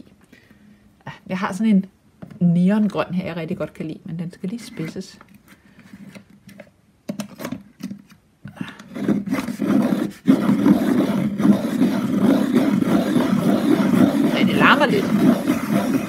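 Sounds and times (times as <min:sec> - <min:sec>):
pencil sharpener grinding: 0:08.8 - 0:16.0.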